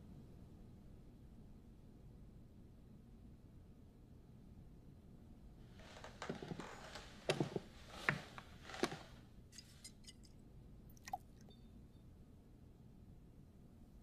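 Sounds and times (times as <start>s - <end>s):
soft knocks and rustles: 5.8s - 9.9s.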